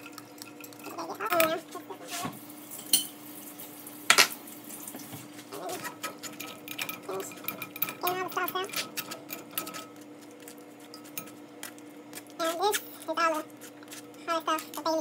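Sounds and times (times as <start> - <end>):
metal spoon scraping wire strainer: 5.6 - 14.9.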